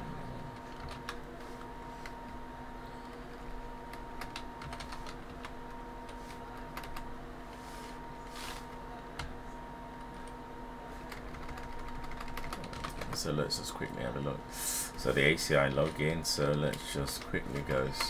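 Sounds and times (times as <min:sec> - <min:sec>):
steady electrical hum: 0:00.0 - 0:18.0
computer keyboard typing: 0:00.5 - 0:01.2, 0:03.0 - 0:07.1, 0:11.1 - 0:13.4, 0:15.8 - 0:18.0.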